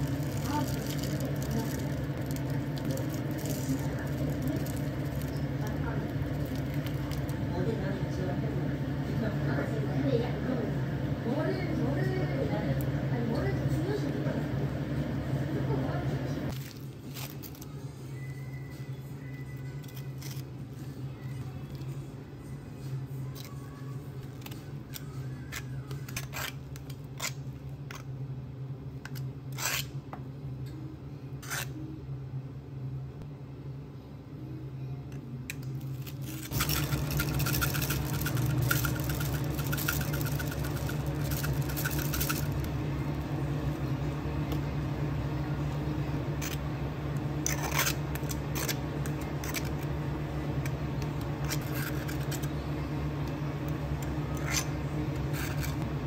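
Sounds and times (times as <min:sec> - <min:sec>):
machine hum: 0:00.0 - 0:56.0
utensils clicking and tapping: 0:36.3 - 0:42.7.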